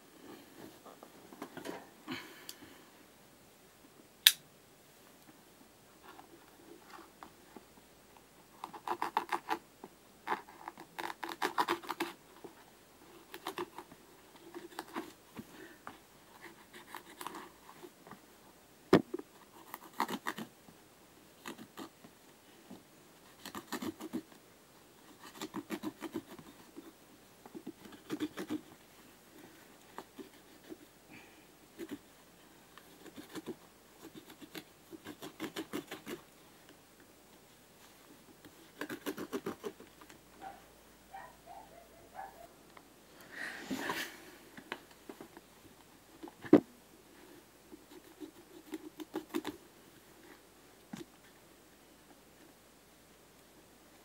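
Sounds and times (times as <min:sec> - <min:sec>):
sharp click: 0:04.2 - 0:04.4.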